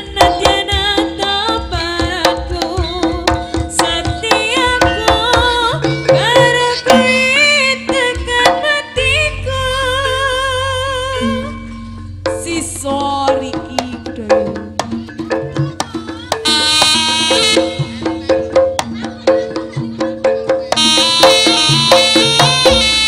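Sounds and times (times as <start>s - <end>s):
hand drum strokes: 0.0s - 23.0s
wavering ornamented melody: 11.2s - 13.1s, 16.4s - 18.7s, 19.4s - 23.0s.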